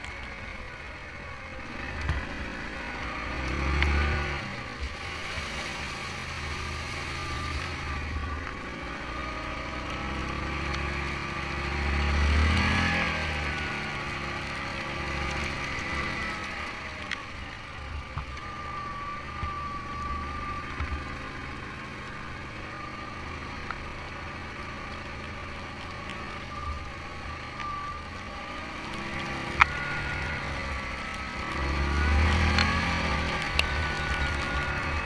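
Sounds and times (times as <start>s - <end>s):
quad bike engine running: 0.0s - 17.0s
wavering whine: 0.0s - 35.0s.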